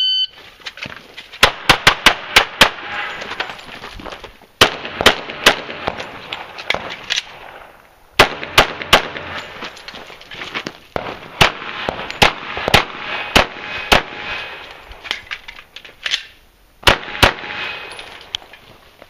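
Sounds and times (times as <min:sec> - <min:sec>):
pistol shots: 0:01.4 - 0:03.2, 0:04.6 - 0:07.6, 0:08.2 - 0:09.8, 0:11.0 - 0:14.6, 0:16.8 - 0:17.9.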